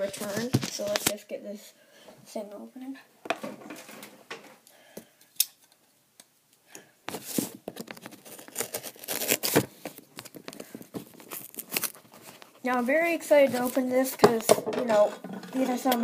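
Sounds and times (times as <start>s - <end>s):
cardboard box being opened: 7.2s - 10.4s.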